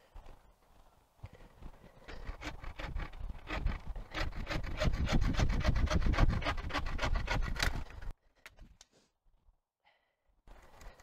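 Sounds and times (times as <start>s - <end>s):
saw cutting wood: 2.2s - 8.1s.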